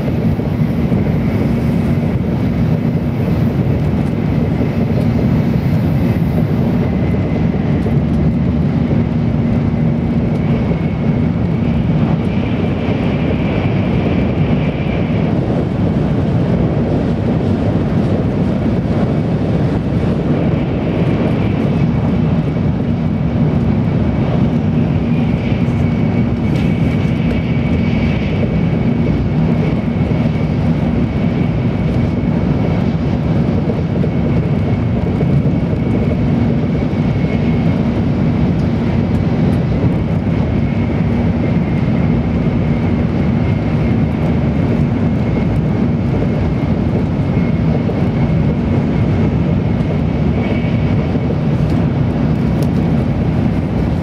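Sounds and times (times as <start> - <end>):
train wheels rumbling: 0.0 - 54.0.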